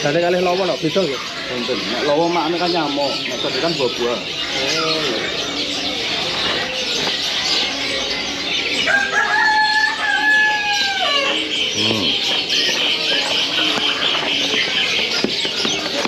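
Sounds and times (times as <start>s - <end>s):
caged birds chirping: 0.0s - 16.0s
rooster crowing: 8.8s - 11.4s.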